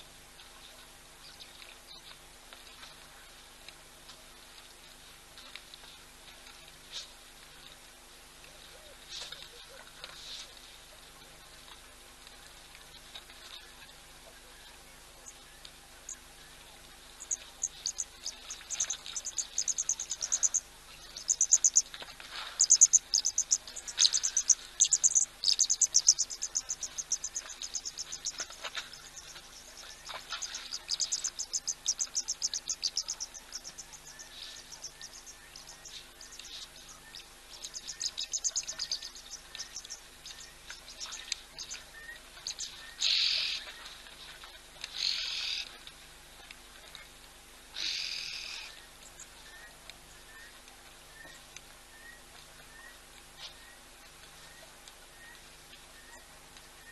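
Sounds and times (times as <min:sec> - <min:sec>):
faint steady hum: 0:00.0 - 0:56.9
animals chirping and trilling: 0:12.4 - 0:45.9, 0:46.9 - 0:56.9.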